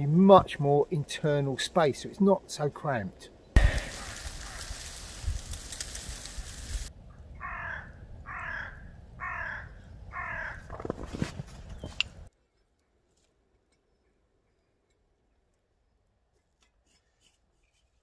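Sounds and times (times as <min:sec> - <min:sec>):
crow cawing: 0:07.4 - 0:10.7.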